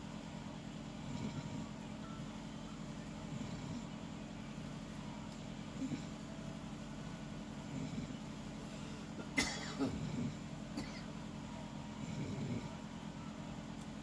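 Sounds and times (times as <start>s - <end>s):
steady low hum: 0.0s - 14.0s
person snoring: 1.0s - 1.8s, 12.0s - 12.9s.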